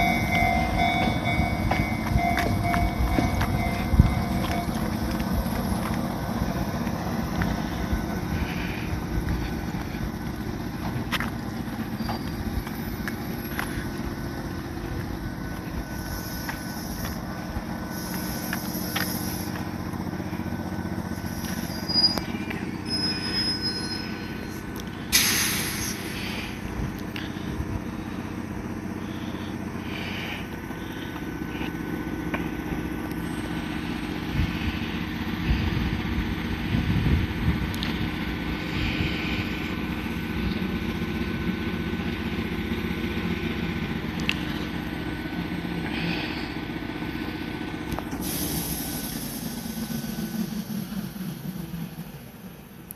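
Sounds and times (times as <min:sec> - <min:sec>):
high wheel squeals: 0:00.0 - 0:14.2, 0:15.6 - 0:36.8
train wheels rumbling on rails: 0:00.0 - 0:52.9
sudden hiss: 0:25.1 - 0:26.3, 0:48.1 - 0:50.5.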